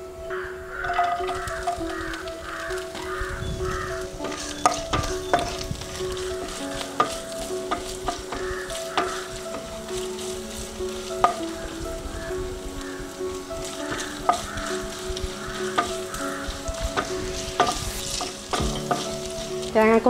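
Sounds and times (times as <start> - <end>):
coconut sizzling in oil: 0.7 - 20.0
spatula stirring: 0.8 - 20.0.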